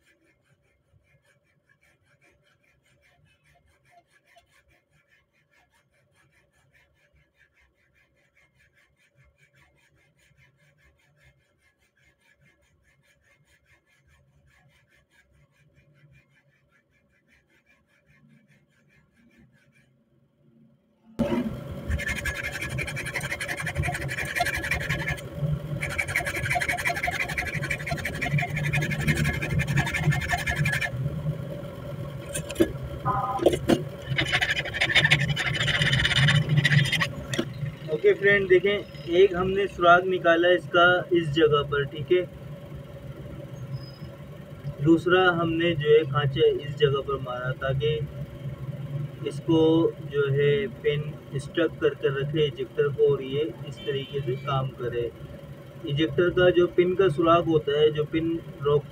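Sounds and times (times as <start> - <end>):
file rasping on steel: 0.0 - 20.1, 21.3 - 31.0, 32.2 - 32.7, 33.4 - 40.3.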